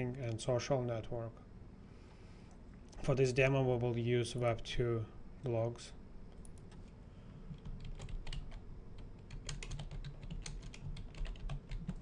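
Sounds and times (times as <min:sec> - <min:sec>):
computer keyboard typing: 0:07.5 - 0:12.0.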